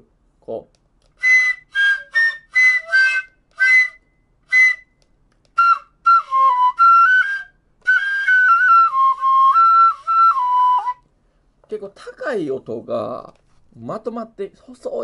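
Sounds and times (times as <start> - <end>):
bamboo flute playing: 1.2 - 11.0.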